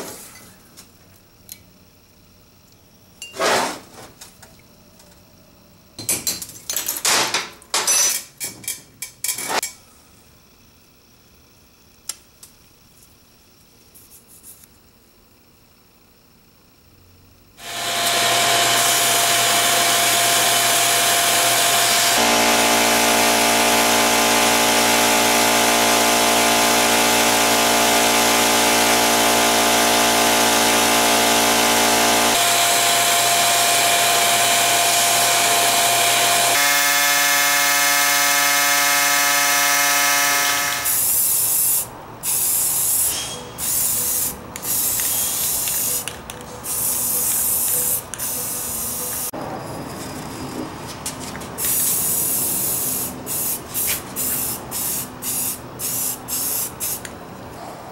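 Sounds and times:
sandblasting gun hissing: 17.6s - 32.7s, 36.5s - 49.3s, 51.6s - 57.1s
spray paint can spraying: 40.3s - 49.3s, 51.6s - 57.2s.

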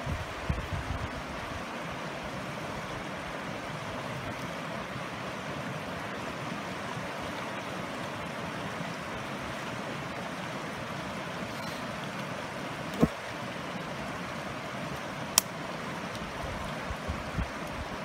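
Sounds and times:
creek running over rocks: 0.0s - 18.0s.

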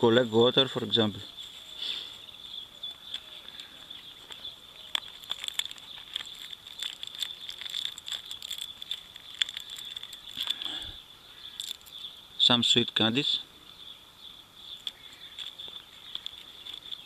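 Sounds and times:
high insect trill: 1.4s - 13.1s
clicks of handling leather pouch: 3.1s - 6.4s.

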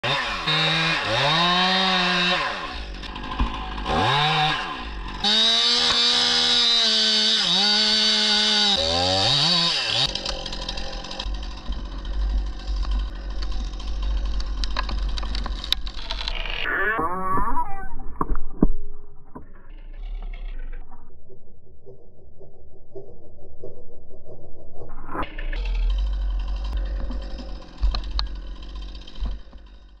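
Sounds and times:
chainsaw revving and cutting: 0.0s - 16.2s, 25.4s - 30.0s
low rumble: 11.2s - 30.0s.

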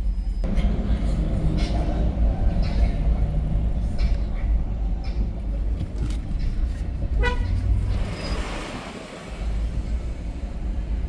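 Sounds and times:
car engine and road noise: 0.0s - 11.0s
car horn beep: 7.1s - 8.6s.

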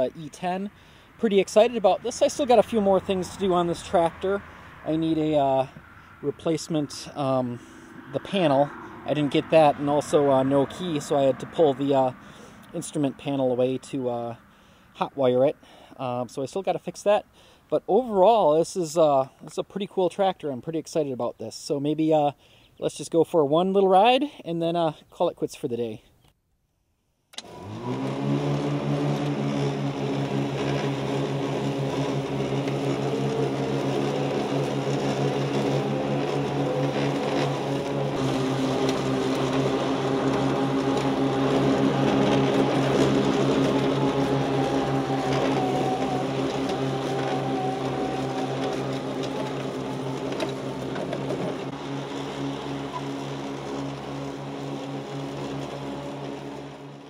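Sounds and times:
electric mower blades whirring: 0.0s - 14.8s, 27.3s - 57.0s.

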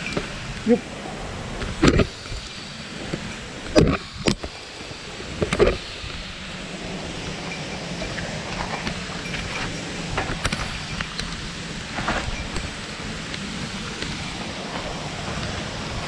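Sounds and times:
wind noise on microphone: 0.0s - 16.0s
footsteps on rocky trail: 4.0s - 16.0s.

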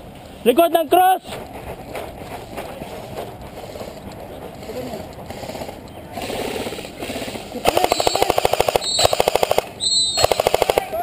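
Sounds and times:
airsoft rifle bursts: 4.6s - 11.0s.

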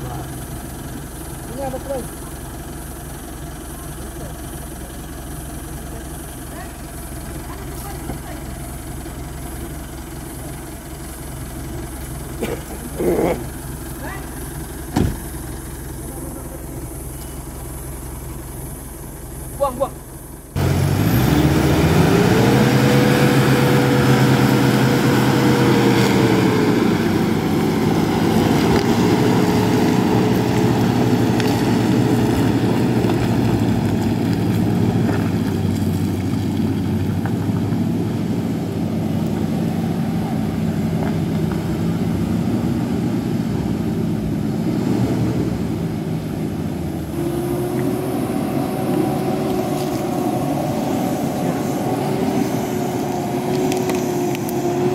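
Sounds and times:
truck engine revving hard: 20.6s - 54.9s.

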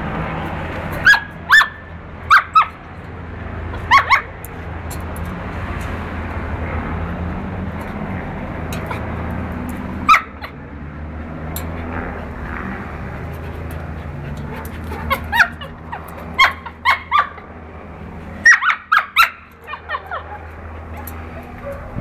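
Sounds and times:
dog whimpering and yipping: 3.7s - 4.4s, 13.4s - 17.5s, 18.5s - 22.0s.

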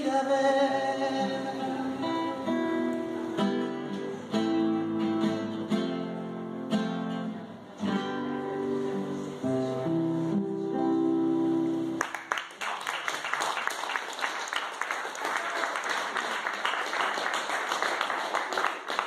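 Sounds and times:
audience applause: 12.0s - 19.0s.

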